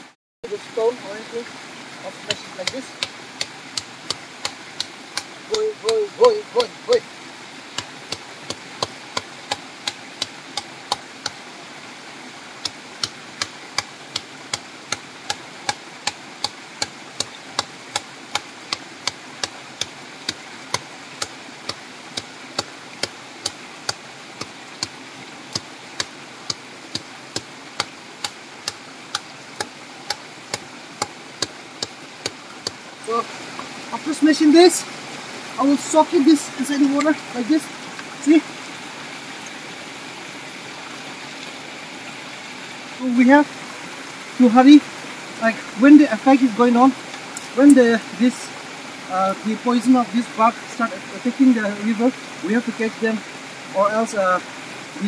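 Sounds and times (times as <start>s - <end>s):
wooden stick knocking on rock: 2.3s - 6.7s, 7.8s - 11.4s, 12.6s - 32.8s.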